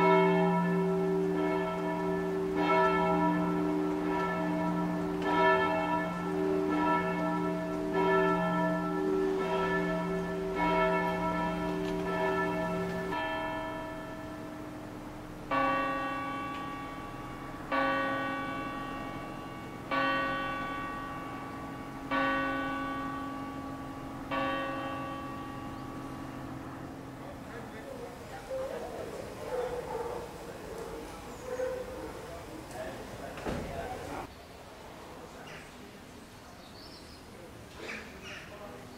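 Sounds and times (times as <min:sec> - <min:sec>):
church bell strokes: 0:00.0 - 0:27.8
lower church bell ringing out: 0:00.0 - 0:28.1.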